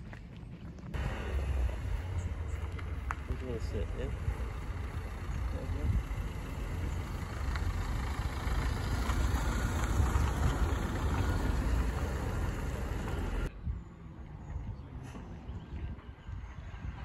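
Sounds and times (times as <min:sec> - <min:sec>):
outdoor background noise: 0:00.0 - 0:17.0
diesel van driving past: 0:01.0 - 0:13.5.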